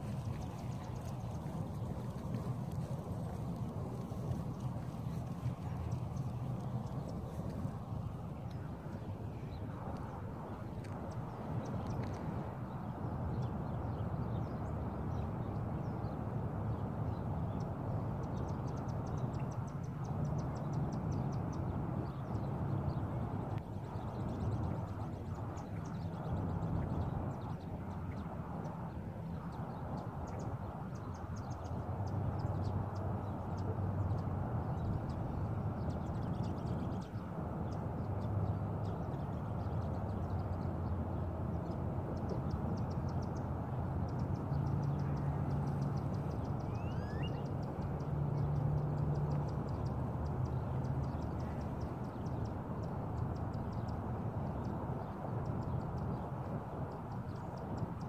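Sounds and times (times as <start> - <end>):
steady low rumble: 0.0 - 16.2
faint high chirping trills: 44.8 - 47.6.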